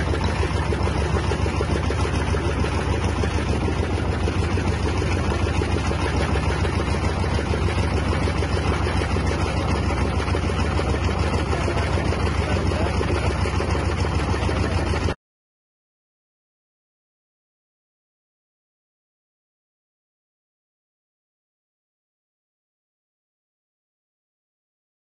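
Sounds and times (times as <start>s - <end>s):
grain thresher engine chugging: 0.0s - 15.2s.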